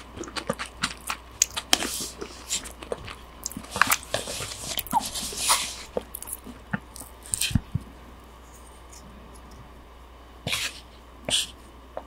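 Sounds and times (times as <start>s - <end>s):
wet chewing: 0.0s - 7.6s.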